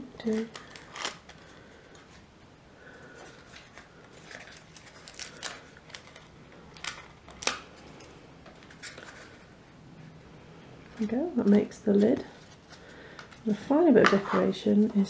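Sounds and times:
card rustling: 3.1s - 9.6s.

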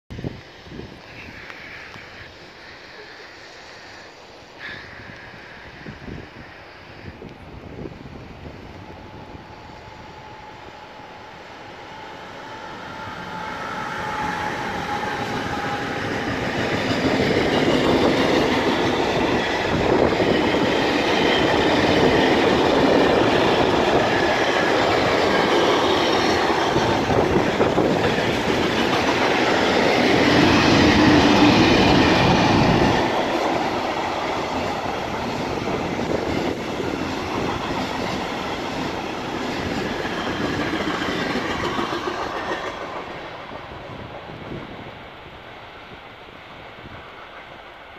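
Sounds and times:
freight train passing: 0.1s - 47.9s
wheels rattling on rails: 9.5s - 44.8s.

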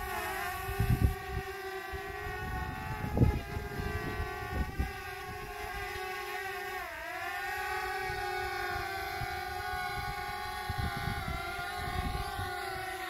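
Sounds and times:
wind buffeting microphone: 0.0s - 6.4s, 7.6s - 13.0s
drone propellers whining: 0.0s - 13.0s.

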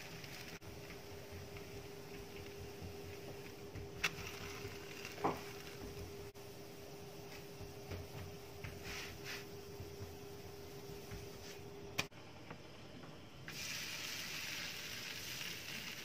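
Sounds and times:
tortilla sizzling on griddle: 0.0s - 3.4s, 4.0s - 5.9s, 13.5s - 16.0s
steady low hum: 0.0s - 14.0s.

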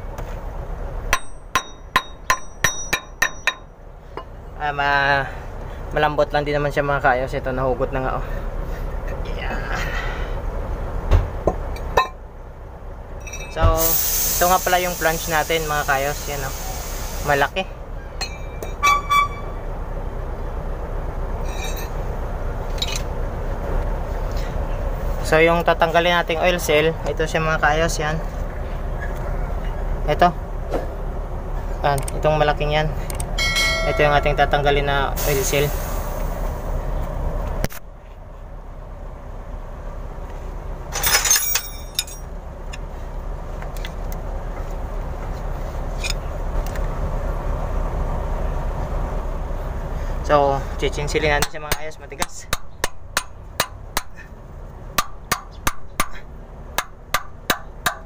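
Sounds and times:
low background rumble: 0.0s - 58.0s
metal tool clattering on metal: 21.4s - 22.0s, 40.9s - 42.3s.

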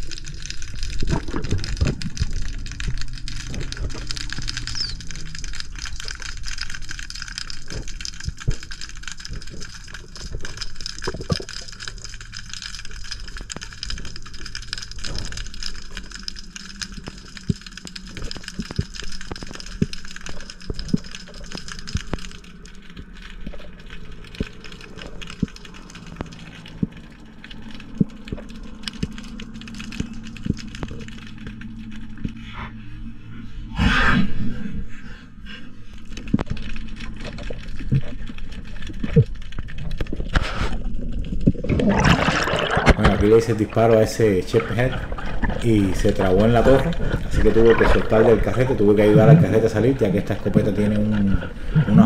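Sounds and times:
crackling clicks: 0.0s - 32.6s, 35.9s - 52.0s
underwater hum and hiss: 0.0s - 52.0s.

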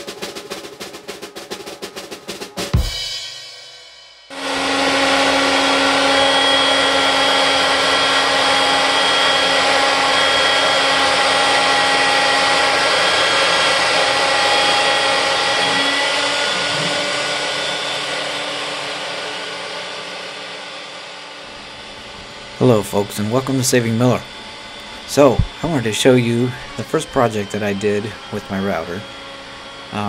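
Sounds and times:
router spindle cutting plywood: 4.3s - 30.0s.

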